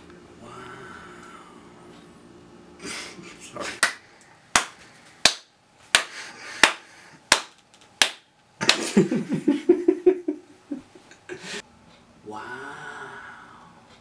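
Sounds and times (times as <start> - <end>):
open-hand slaps: 3.8 - 4.0, 4.6 - 8.9
laughter: 8.6 - 11.4.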